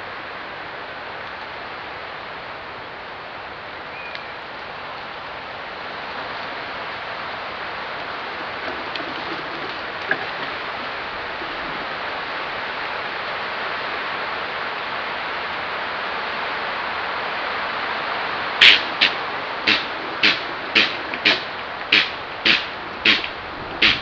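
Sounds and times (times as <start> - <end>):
steady hiss: 0.0 - 24.0
faint short click: 4.0 - 4.3.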